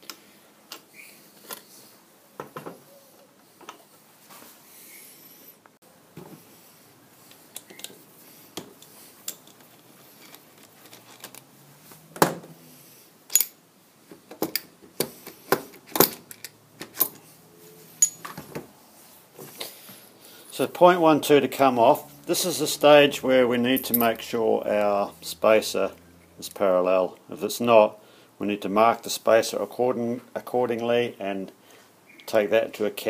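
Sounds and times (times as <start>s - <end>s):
steel parts clinking: 8.6s - 11.5s, 13.3s - 13.6s, 18.0s - 18.4s, 23.7s - 24.2s.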